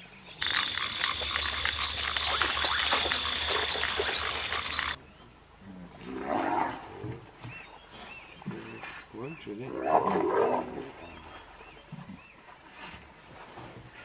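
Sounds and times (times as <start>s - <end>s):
splashing in water: 0.4s - 5.0s
wild dogs twittering chatter: 0.4s - 5.0s
hyenas growling: 6.0s - 7.2s, 9.7s - 11.3s.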